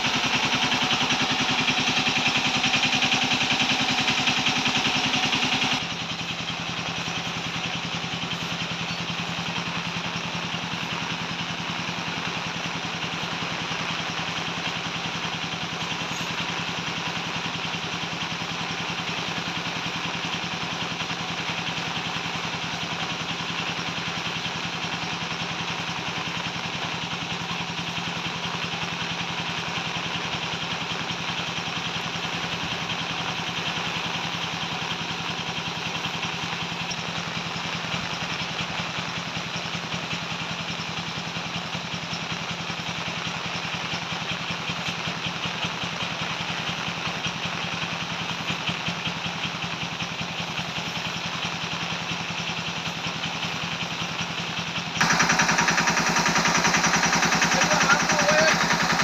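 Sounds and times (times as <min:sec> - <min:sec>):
pressure washer motor drone: 0:00.0 - 0:59.0
water jet hissing: 0:55.0 - 0:59.0.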